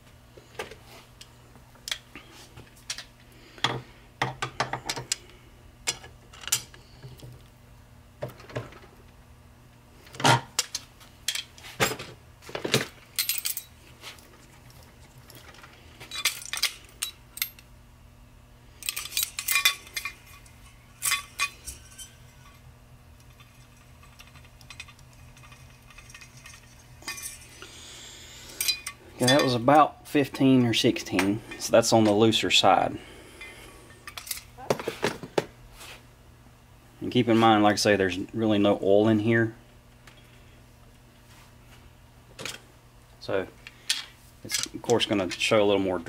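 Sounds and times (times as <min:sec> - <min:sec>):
metal tools clinking: 0:13.2 - 0:13.8, 0:15.5 - 0:17.6, 0:18.8 - 0:27.7, 0:28.5 - 0:29.7, 0:34.0 - 0:34.5.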